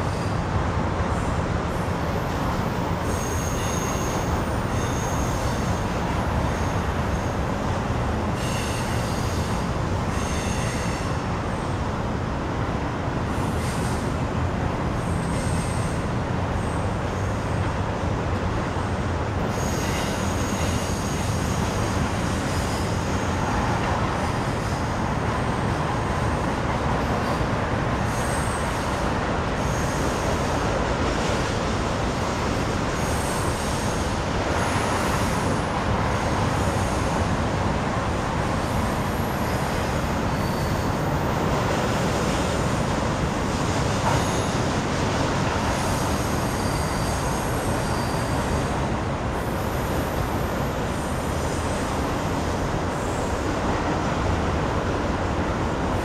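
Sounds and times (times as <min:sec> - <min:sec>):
freight train wheels rumbling: 0:00.0 - 0:56.0
wheel squeal: 0:03.0 - 0:05.8, 0:08.4 - 0:11.0, 0:19.5 - 0:21.7, 0:39.4 - 0:41.1, 0:43.6 - 0:44.6, 0:45.7 - 0:48.7.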